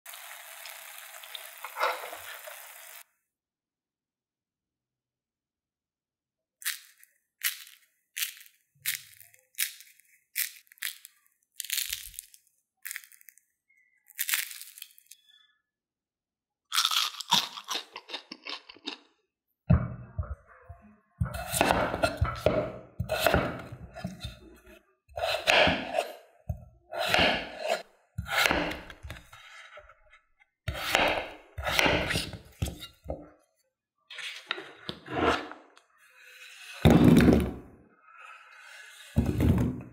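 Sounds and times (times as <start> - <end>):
fried snacks crunching: 6.6 - 15.2, 16.7 - 19.1
knife chopping on wooden board: 21.3 - 24.5, 25.2 - 29.2, 30.7 - 32.9.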